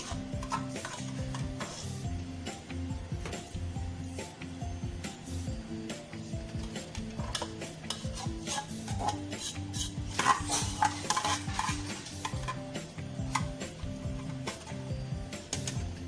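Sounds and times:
metal spoon scraping rice in pot: 0.0s - 2.0s, 7.2s - 13.5s
background music: 0.0s - 16.0s.

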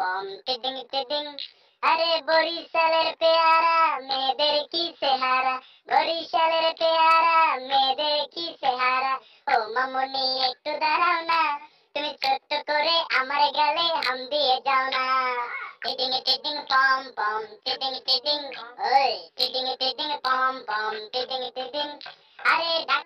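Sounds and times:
high child-like voice chanting: 8.2s - 23.0s.

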